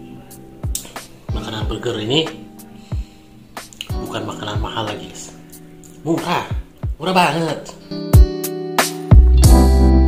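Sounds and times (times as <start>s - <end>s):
guitar: 0.0s - 10.0s
deep bass: 9.2s - 10.0s.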